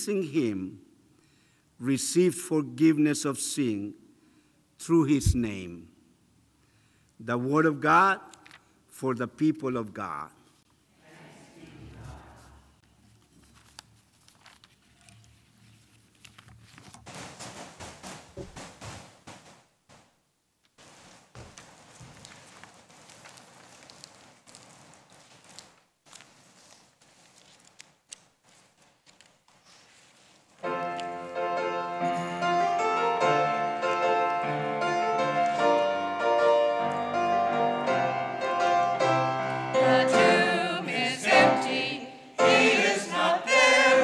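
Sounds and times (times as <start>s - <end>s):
paper rustling: 12.8s - 30.7s
piano playing chords: 30.6s - 43.6s.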